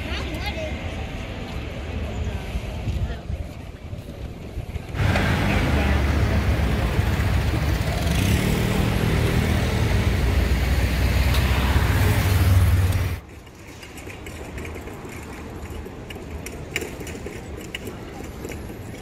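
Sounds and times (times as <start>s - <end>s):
street traffic: 0.0s - 19.0s
van engine rumbling: 4.9s - 13.2s.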